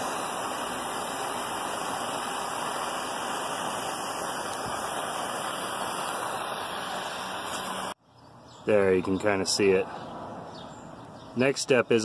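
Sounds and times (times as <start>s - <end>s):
gas torch hissing: 0.0s - 8.0s.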